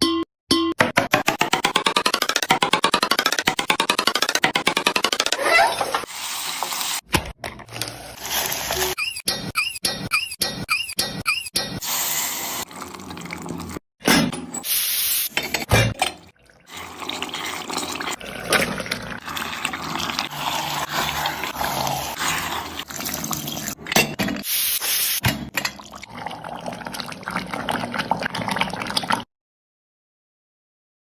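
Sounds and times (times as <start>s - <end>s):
water pouring into a pot: 11.8s - 13.8s, 16.3s - 23.8s, 25.6s - 29.2s.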